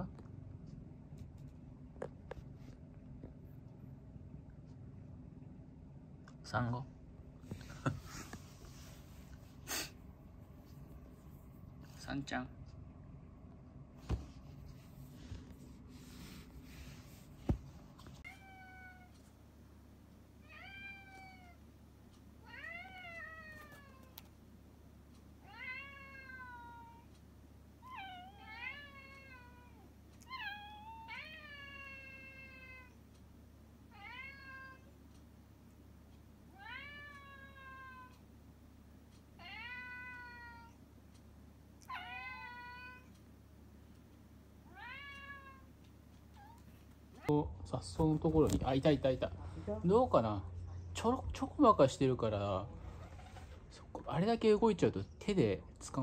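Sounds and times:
cat meowing: 18.2 - 19.2, 25.4 - 27.1, 27.8 - 33.0, 33.9 - 34.9, 36.5 - 38.2, 39.4 - 40.8, 41.8 - 43.1, 44.7 - 45.6.

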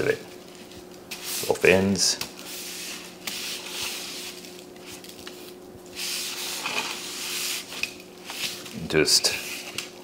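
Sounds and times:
salt grains scraping on metal pan: 6.0 - 7.8.

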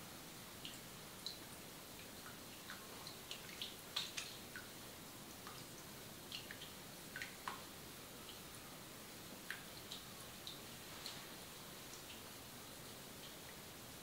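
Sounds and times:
water dripping: 0.5 - 14.0
small wet clicks: 0.6 - 4.7, 5.4 - 8.5.

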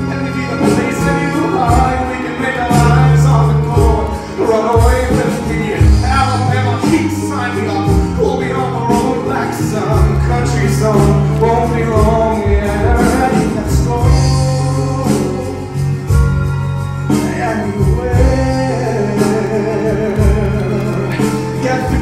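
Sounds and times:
instrumental accompaniment: 0.0 - 22.0
man singing a ballad: 0.0 - 22.0.

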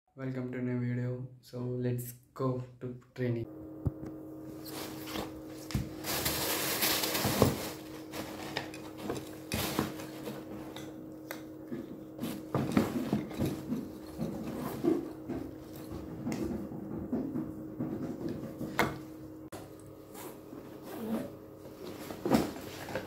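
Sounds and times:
steady low hum: 0.2 - 23.0
plastic bag crinkling: 5.9 - 8.6.

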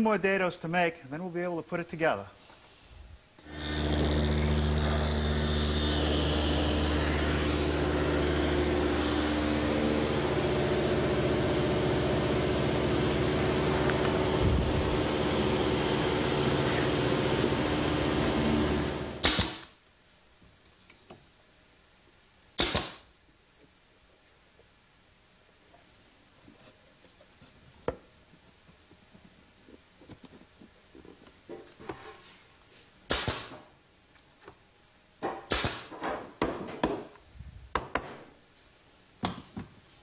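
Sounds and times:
brad nailer firing: 3.4 - 10.1, 16.6 - 19.7, 22.6 - 23.1, 33.1 - 33.6, 35.4 - 36.0
saw cutting wood board: 3.4 - 10.2
table saw running: 3.4 - 19.2.

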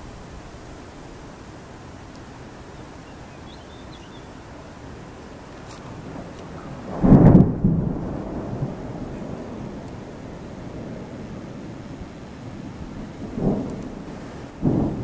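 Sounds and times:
storm wind hiss: 0.0 - 15.0
thunder rumble and clap: 6.0 - 15.0.

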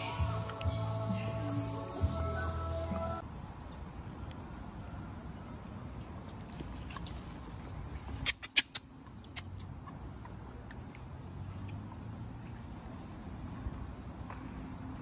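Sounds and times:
monkeys squeaking: 8.2 - 9.7.

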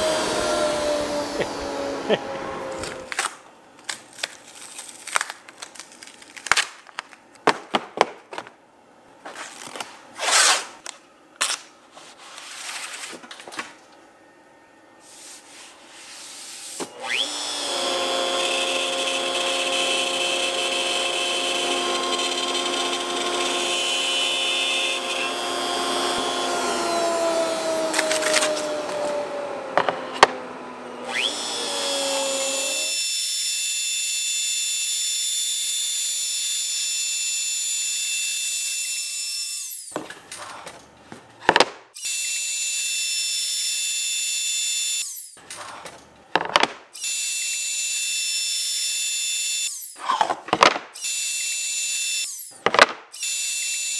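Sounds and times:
router spindle whine: 0.0 - 3.1, 16.8 - 40.7, 42.0 - 45.4, 47.0 - 50.3, 51.0 - 52.6, 53.2 - 53.9.

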